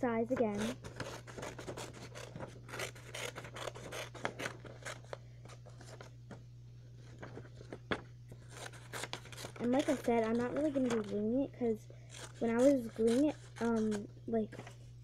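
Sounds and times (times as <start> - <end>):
scissors snipping paper: 0.3 - 6.0, 8.4 - 11.2, 12.1 - 14.0.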